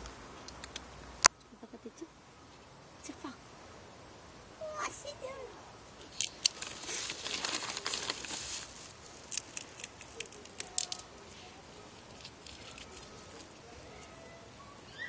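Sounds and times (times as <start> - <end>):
rustle: 0.0 - 15.0
peanut shells clicking: 6.1 - 6.7, 9.2 - 11.2.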